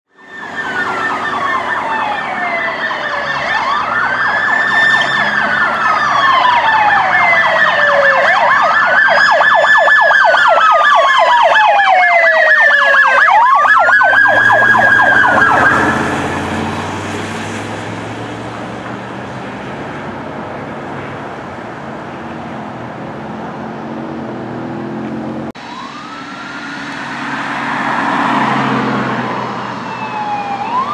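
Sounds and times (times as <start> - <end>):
steady high siren tone: 0.1 - 18.5, 25.5 - 30.9
yelping siren: 0.1 - 18.6, 25.6 - 30.9
engines and tyres on road: 0.1 - 30.9
wailing siren: 0.1 - 30.9.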